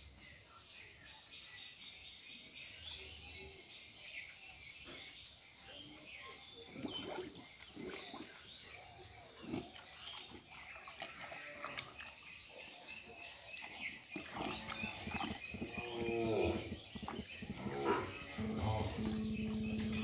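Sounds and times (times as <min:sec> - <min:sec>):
cow feeding from plastic bucket: 0:06.4 - 0:20.0
cow mooing: 0:17.6 - 0:20.0.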